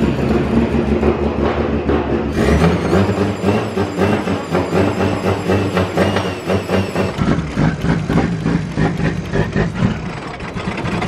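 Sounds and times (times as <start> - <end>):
car engine idling unevenly: 3.4 - 11.0.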